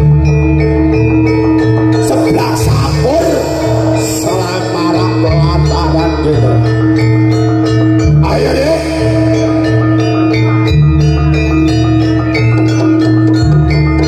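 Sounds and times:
deep held bass notes: 0.0s - 14.0s
gliding melody line: 0.0s - 14.0s
struck metal percussion: 0.0s - 14.0s.

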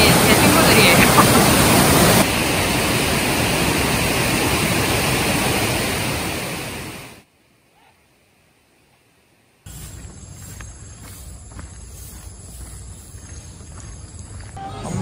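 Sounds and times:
waterfall rushing over rocks: 0.0s - 7.2s.

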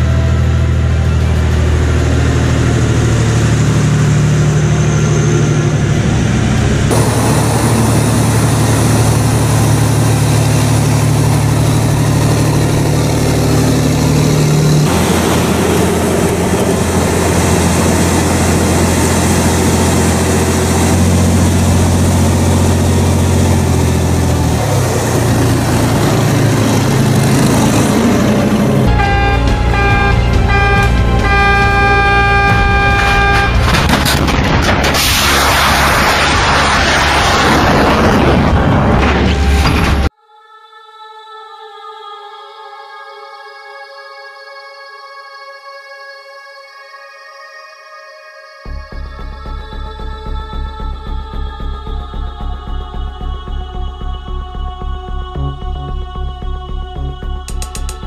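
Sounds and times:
diesel truck engine running: 0.0s - 40.1s.

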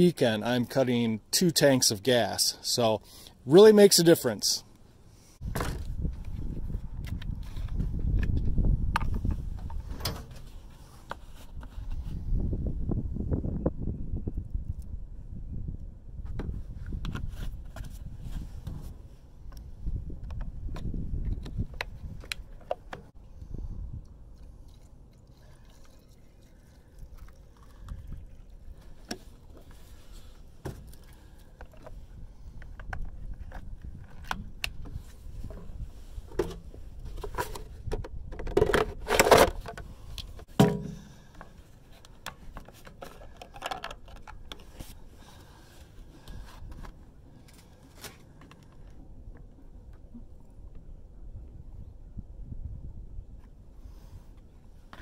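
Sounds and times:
clicks and knocks of plastic parts: 36.3s - 44.9s.

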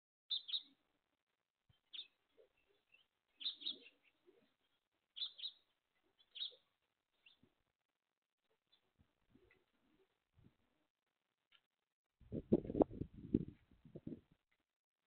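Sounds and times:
faint bird chirps: 0.3s - 0.8s, 1.7s - 7.5s.

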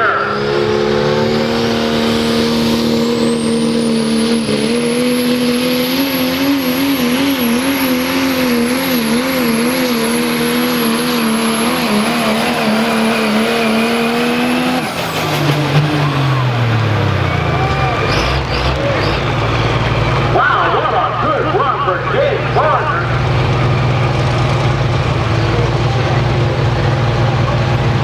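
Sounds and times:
diesel engine running flat out: 0.0s - 28.0s
high turbo whistle: 2.6s - 7.0s.

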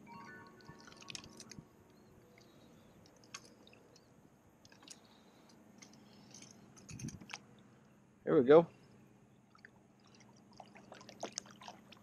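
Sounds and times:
faint clicks of fishing tackle: 2.4s - 7.4s.

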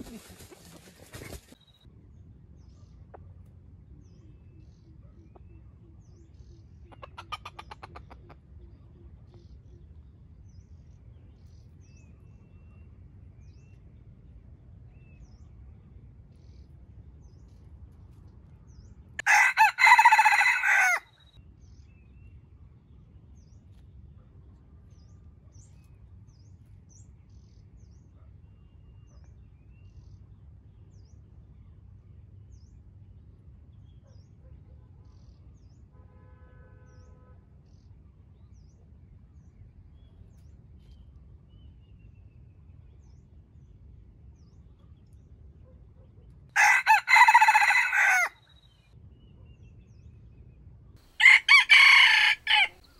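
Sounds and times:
small birds chirping: 0.0s - 1.9s
rooster crowing: 19.2s - 21.1s, 46.6s - 48.4s, 51.2s - 52.9s.

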